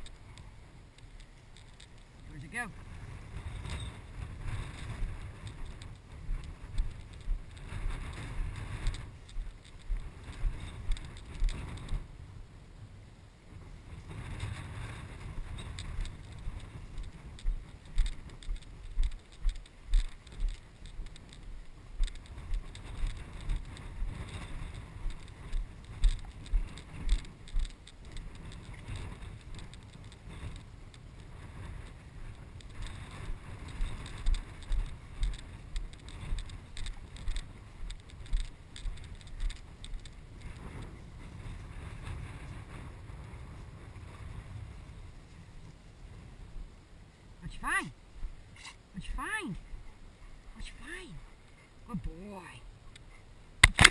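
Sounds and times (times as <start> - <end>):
footsteps in wet grass: 0.0 - 12.0, 15.1 - 41.3.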